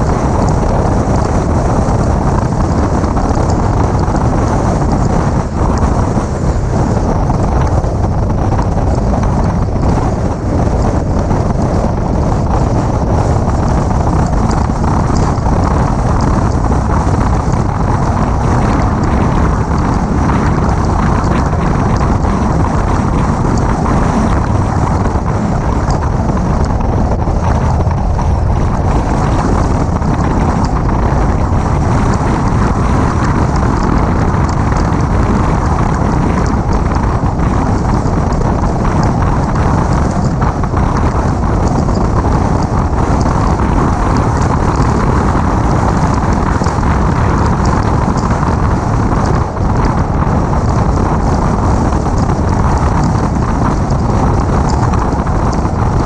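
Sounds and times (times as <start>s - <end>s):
car road and engine noise: 0.0s - 56.0s
wind rushing over microphone: 0.0s - 56.0s.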